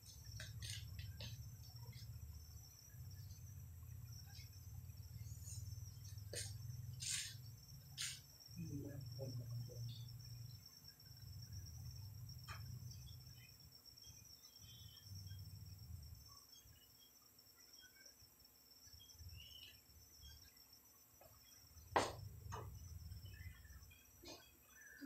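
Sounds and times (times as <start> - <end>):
crickets trilling: 0.0 - 25.0.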